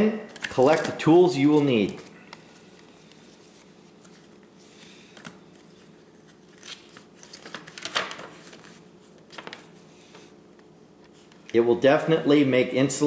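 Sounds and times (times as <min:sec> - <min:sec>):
faint steady hum: 0:00.0 - 0:13.0
paper rustling and crackling: 0:01.5 - 0:09.8.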